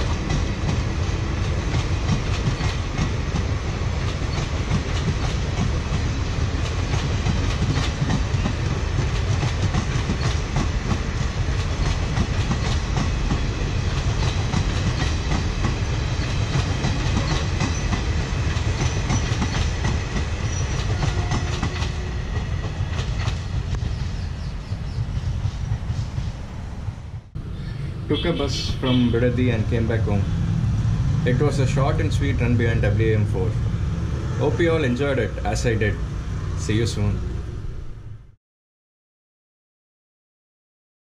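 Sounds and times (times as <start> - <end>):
train wheels clickety-clack: 0.0 - 26.4.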